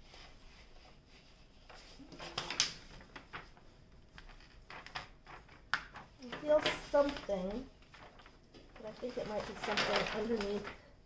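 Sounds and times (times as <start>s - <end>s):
paper rustling and crinkling: 0.0s - 11.0s.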